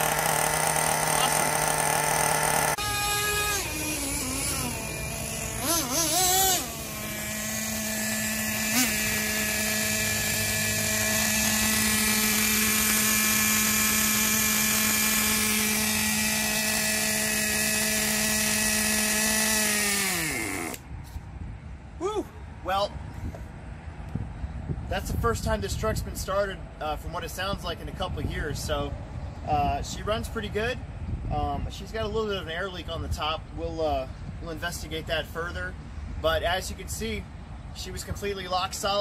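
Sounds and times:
nitro engine revving and idling: 0.0 - 20.8.

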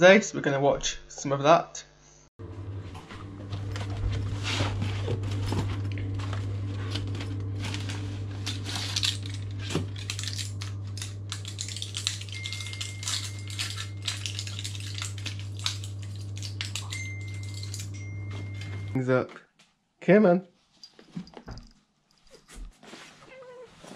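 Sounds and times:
low hum: 2.4 - 19.0
small hard objects clinking: 7.6 - 18.0
thin high tone: 12.0 - 14.6, 16.6 - 19.0.

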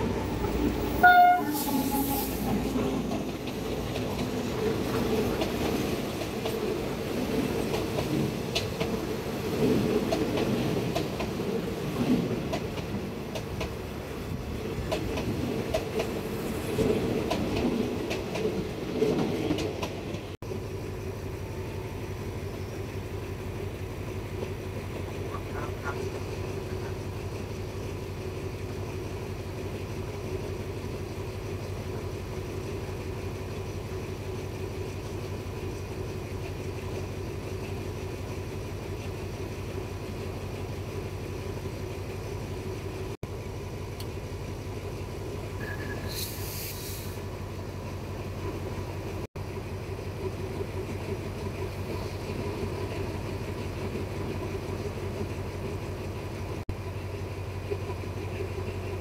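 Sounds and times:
train rolling rumble: 0.0 - 59.0
short hiss: 46.0 - 47.3.

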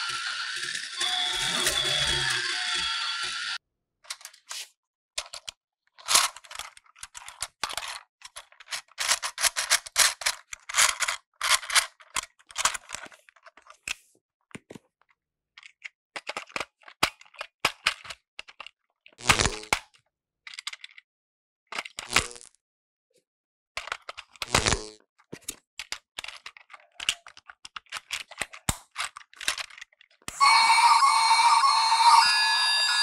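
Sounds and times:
plastic toy clicks and rattles: 5.2 - 13.9, 15.6 - 21.1, 21.7 - 22.4, 23.8 - 30.3.

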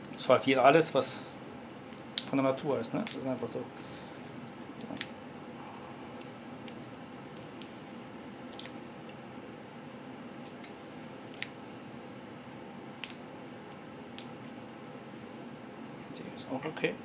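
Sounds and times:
chestnut shell cracks and scrapes: 3.0 - 3.3, 13.0 - 13.2.

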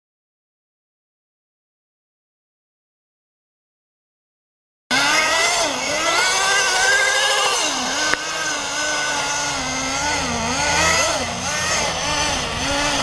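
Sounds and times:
small nitro engine revving: 4.9 - 13.0.

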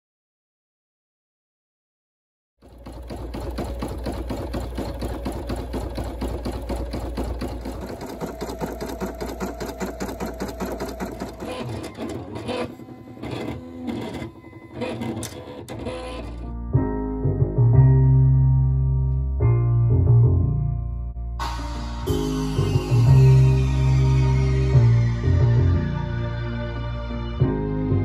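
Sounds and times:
embroidery machine stitching: 2.6 - 16.5.

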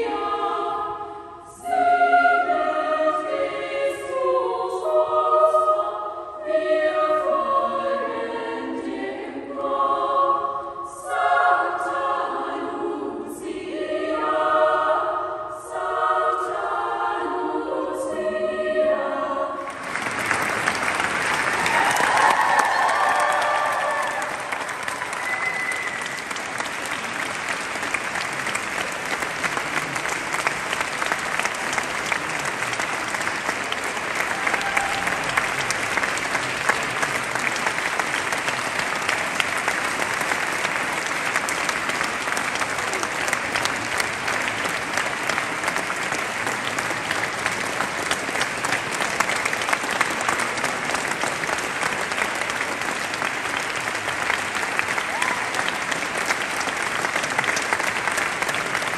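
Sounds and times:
audience applauding: 19.6 - 58.9.

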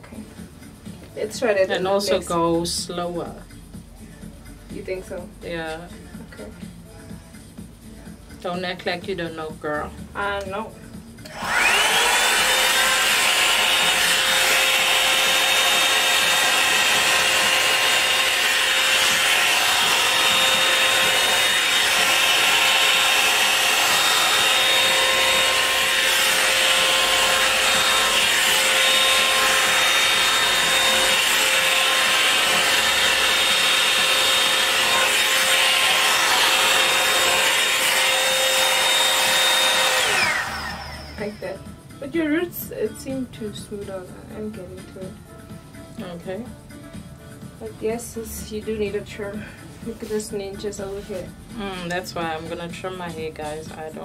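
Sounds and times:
dryer brush motor whining: 11.2 - 42.2.

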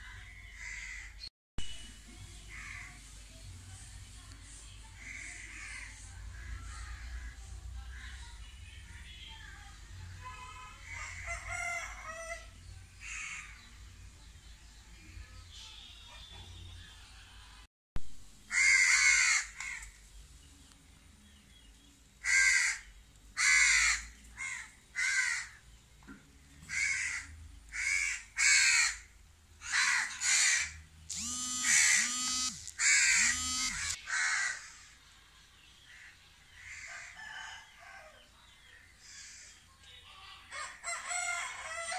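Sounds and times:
crows cawing: 0.6 - 1.2, 5.0 - 8.2, 13.0 - 13.6, 18.5 - 20.0, 22.2 - 25.6, 26.7 - 30.8, 32.8 - 34.9.

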